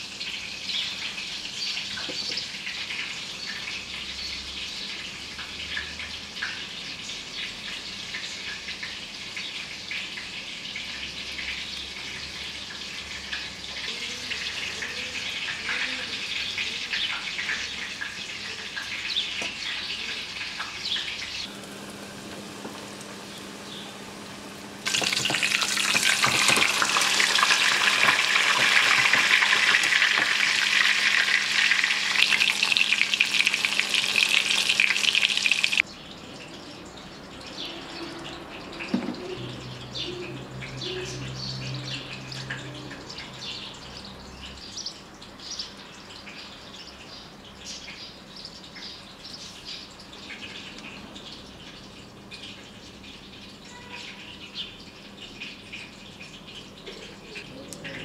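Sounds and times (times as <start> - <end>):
chicken deep-frying in oil: 0.0 - 58.0
steady crackling hiss: 19.9 - 35.8.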